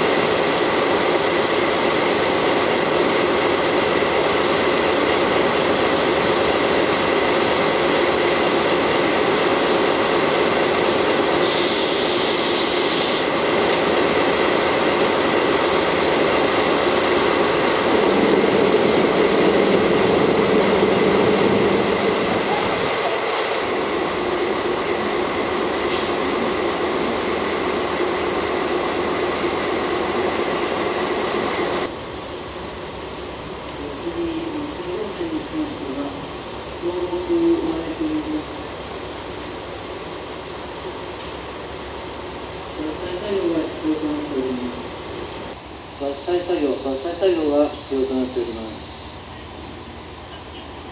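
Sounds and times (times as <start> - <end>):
diesel locomotive idling: 0.0 - 50.9
high hiss with rising whistle: 11.3 - 13.4.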